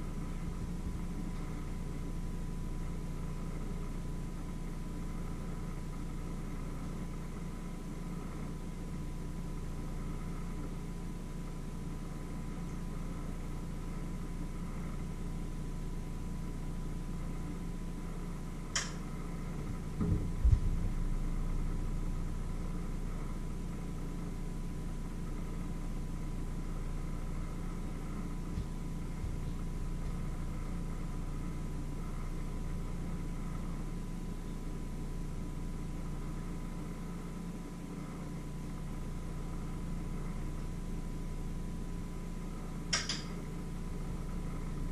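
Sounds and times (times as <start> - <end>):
low hum with faint tone: 0.0 - 44.9
sharp click: 18.7 - 19.0, 42.9 - 43.4
dull knocks: 20.0 - 20.8.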